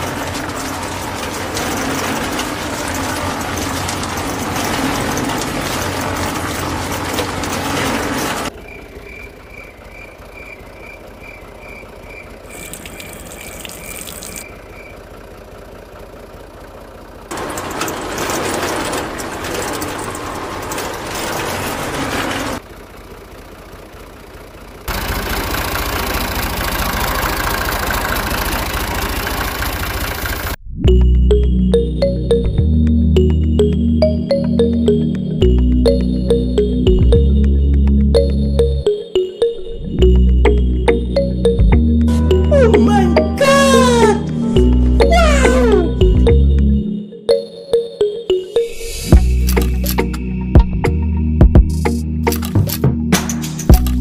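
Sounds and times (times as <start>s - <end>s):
toy motor and gears whirring: 12.5s - 14.5s.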